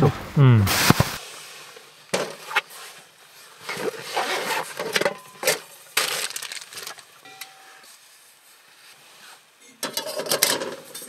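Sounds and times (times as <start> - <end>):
metal pots knocking and clinking: 9.8 - 11.0.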